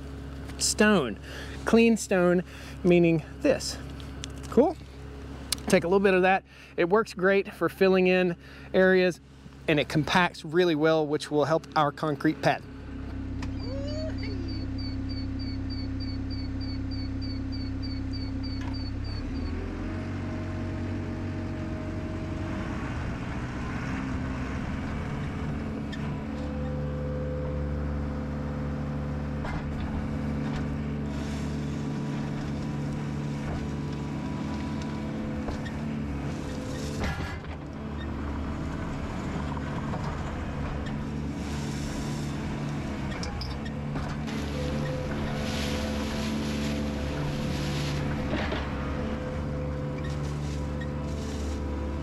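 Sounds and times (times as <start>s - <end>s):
diesel engine running: 0.0s - 52.0s
machine clunk: 46.8s - 50.9s.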